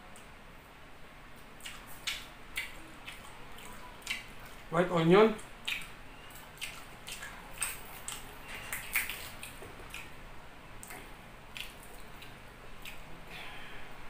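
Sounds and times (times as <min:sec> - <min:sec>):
fingers squishing through food: 0:01.4 - 0:04.7, 0:05.4 - 0:10.2, 0:10.8 - 0:13.1
wet chewing and smacking: 0:01.4 - 0:04.7, 0:05.4 - 0:10.2, 0:10.8 - 0:13.1.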